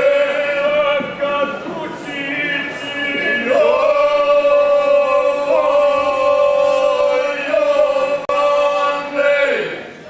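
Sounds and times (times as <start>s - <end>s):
group singing unaccompanied: 0.0s - 9.9s.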